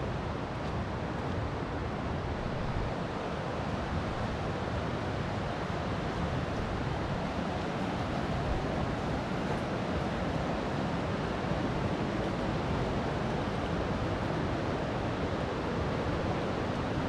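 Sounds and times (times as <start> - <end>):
river rapid roaring: 0.0 - 17.0.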